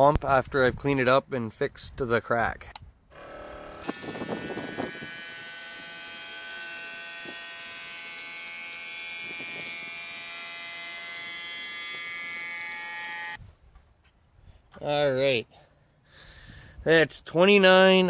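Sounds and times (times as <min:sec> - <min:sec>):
small motor pump whining: 0:03.1 - 0:13.4.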